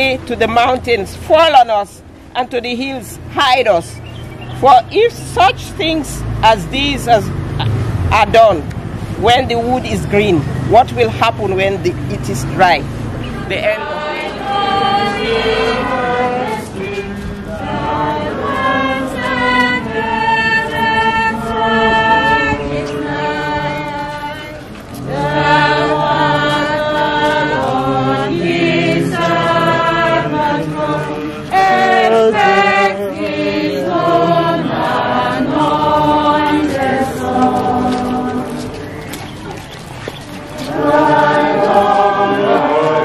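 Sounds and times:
choir and congregation singing hymn: 0:11.9 - 0:39.6, 0:40.4 - 0:43.0.

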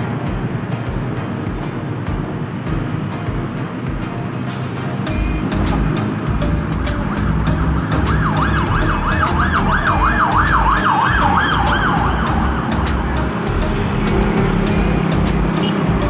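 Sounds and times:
road traffic rumble: 0:00.0 - 0:16.0
siren yelping: 0:07.4 - 0:13.4.

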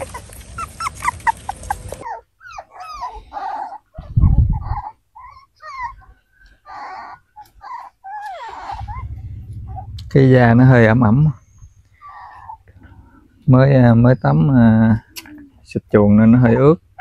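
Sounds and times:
puppies whimpering and yelping: 0:00.0 - 0:09.9, 0:11.2 - 0:15.6
low thump: 0:08.8 - 0:10.8.

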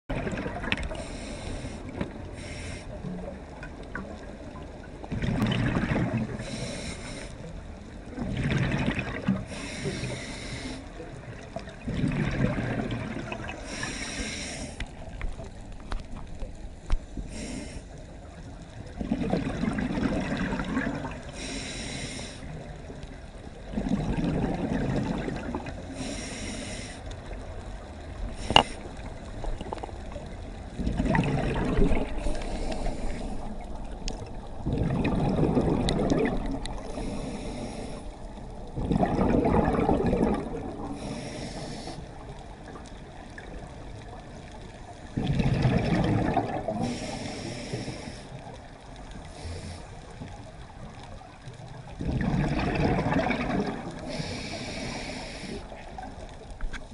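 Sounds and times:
diver breathing through regulator: 0:00.9 - 0:03.0, 0:06.3 - 0:07.5, 0:09.4 - 0:11.0, 0:13.4 - 0:15.0, 0:17.2 - 0:18.1, 0:21.2 - 0:22.6, 0:25.7 - 0:27.2, 0:28.4 - 0:29.0, 0:31.0 - 0:33.9, 0:36.6 - 0:38.5, 0:39.5 - 0:42.2, 0:46.3 - 0:48.6, 0:49.2 - 0:50.3, 0:53.9 - 0:56.1
bubbling exhaled air: 0:05.1 - 0:07.2, 0:11.8 - 0:14.8, 0:19.0 - 0:22.3, 0:23.7 - 0:26.9, 0:28.2 - 0:42.0, 0:45.1 - 0:48.3, 0:51.9 - 0:56.1.

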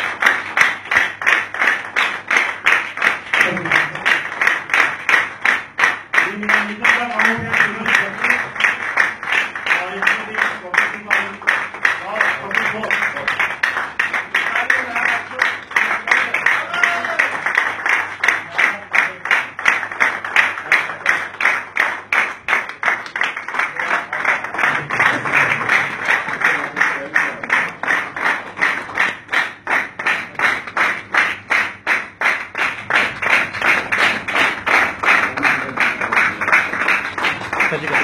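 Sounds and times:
audience clapping in unison: 0:00.0 - 0:38.0.

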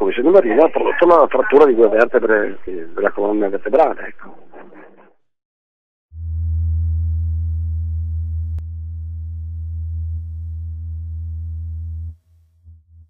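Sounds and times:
steady low electronic tone: 0:06.2 - 0:13.0.

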